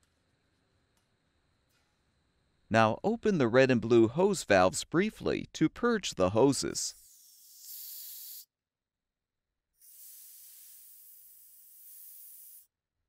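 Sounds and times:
refrigerant hissing from hoses: 0:07.0 - 0:08.5, 0:09.8 - 0:12.7.

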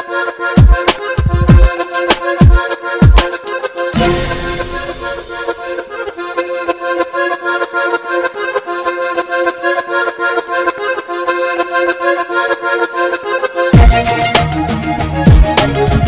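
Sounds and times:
melody over steady beat: 0:00.6 - 0:06.1, 0:13.8 - 0:16.0.

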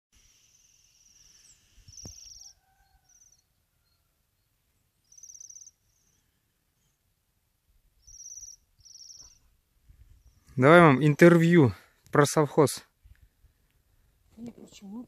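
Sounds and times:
songbirds trilling: 0:00.6 - 0:04.0, 0:05.0 - 0:06.3, 0:08.0 - 0:09.4.

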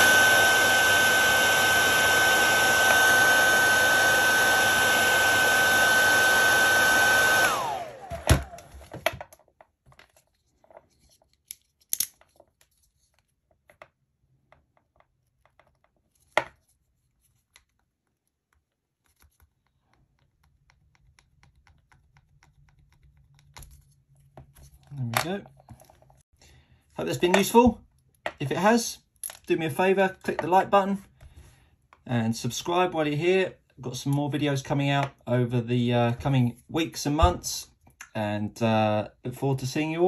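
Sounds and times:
hairdryer blowing with motor whine: 0:00.0 - 0:09.0.

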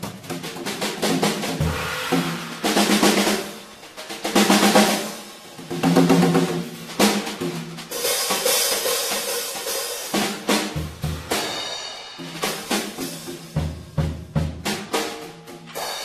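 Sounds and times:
drum strokes: 0:00.0 - 0:16.0
cymbal wash: 0:01.6 - 0:04.0.

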